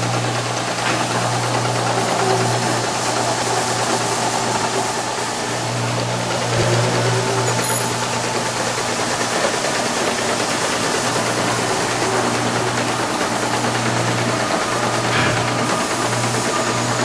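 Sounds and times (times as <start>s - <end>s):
conveyor machinery humming: 0.0s - 17.0s.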